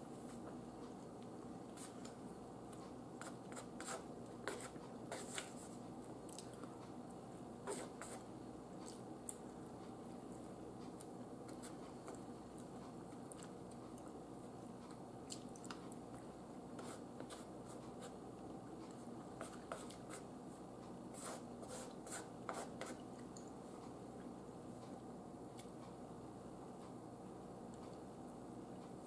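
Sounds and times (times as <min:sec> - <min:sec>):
chewing: 0:06.2 - 0:06.9, 0:08.8 - 0:09.4, 0:12.1 - 0:14.2, 0:14.8 - 0:16.3.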